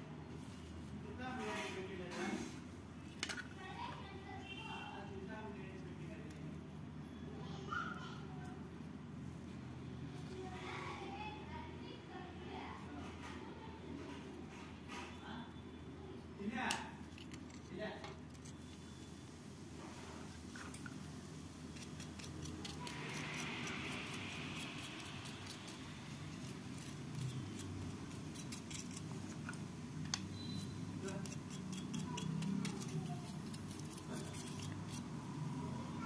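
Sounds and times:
brush scratching circuit board: 0:21.7 - 0:29.7, 0:30.4 - 0:35.4.

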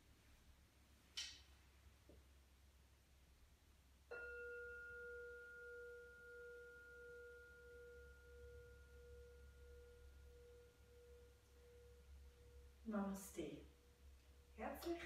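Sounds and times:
singing bowl ringing: 0:04.1 - 0:13.0.

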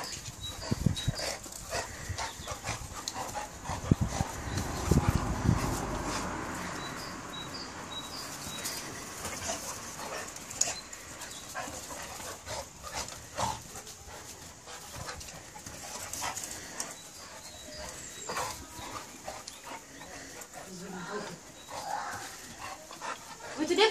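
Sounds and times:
dogs growling and vocalizing: 0:00.0 - 0:06.9, 0:08.5 - 0:23.9
dogs scuffling on grass: 0:00.0 - 0:23.9.

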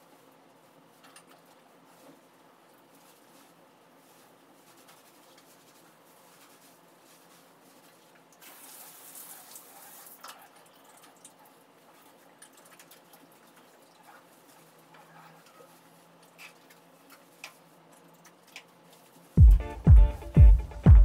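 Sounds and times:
water and paws pattering on floor: 0:00.0 - 0:19.4
water spraying from shower head: 0:08.4 - 0:10.3.

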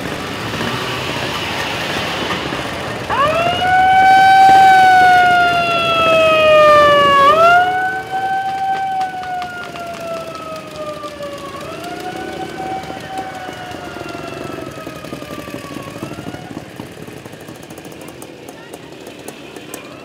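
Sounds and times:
motorcycle engines passing: 0:00.0 - 0:20.0
siren wailing: 0:01.2 - 0:16.8.

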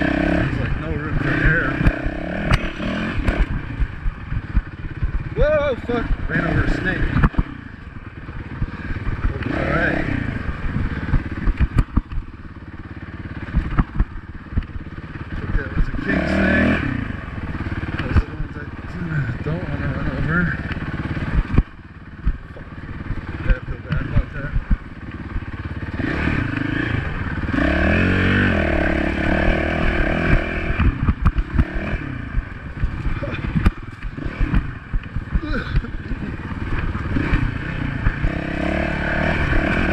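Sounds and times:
dirt bike engine running: 0:00.0 - 0:39.9
bike knocks and clatter: 0:11.0 - 0:12.3.

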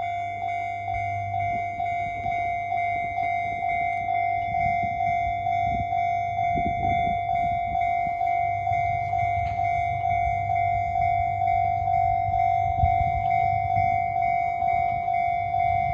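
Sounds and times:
level crossing bell dinging: 0:00.0 - 0:15.9
low rumble: 0:00.0 - 0:15.9.

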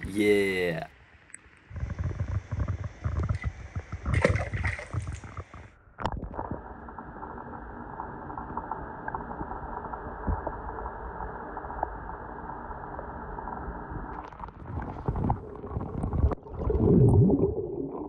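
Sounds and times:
dull underwater wash: 0:00.9 - 0:18.0
water splashing: 0:01.7 - 0:06.5.

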